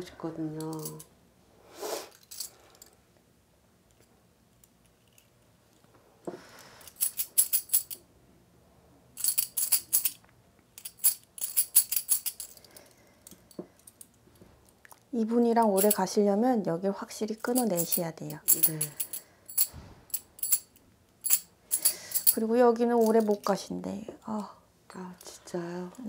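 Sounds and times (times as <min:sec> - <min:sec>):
metal coins clinking: 0:00.6 - 0:01.1, 0:02.1 - 0:02.8, 0:06.8 - 0:08.0, 0:09.2 - 0:10.2, 0:10.8 - 0:12.8, 0:15.6 - 0:16.1, 0:17.4 - 0:23.6.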